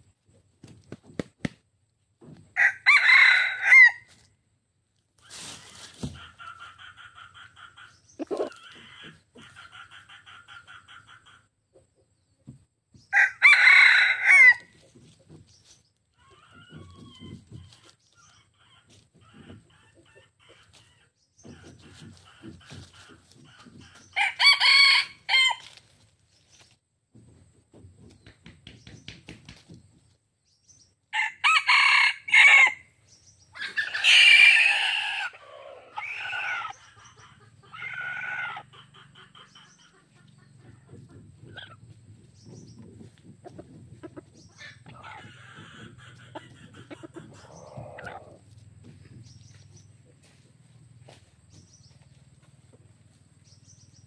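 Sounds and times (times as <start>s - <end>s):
roosters crowing: 2.2s - 4.3s, 13.0s - 15.2s, 16.2s - 18.0s, 21.4s - 25.8s, 31.1s - 32.9s, 33.5s - 39.7s, 44.0s - 49.8s.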